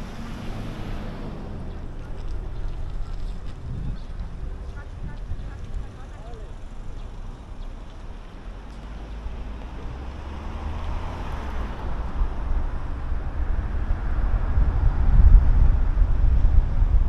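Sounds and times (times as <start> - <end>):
deep rumble: 0.0 - 7.0, 10.8 - 17.0
car road and wind noise: 0.0 - 17.0.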